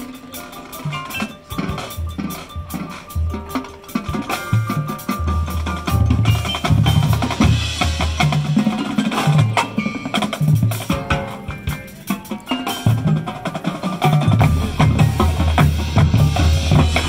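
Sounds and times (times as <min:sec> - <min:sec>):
marching band drums: 0:00.0 - 0:17.0
marimbas and vibraphones: 0:00.0 - 0:17.0
low bass notes: 0:14.4 - 0:17.0.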